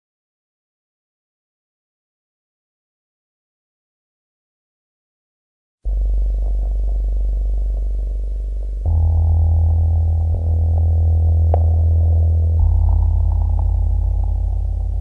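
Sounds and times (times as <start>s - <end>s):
deep synthesizer drone: 5.9s - 15.0s.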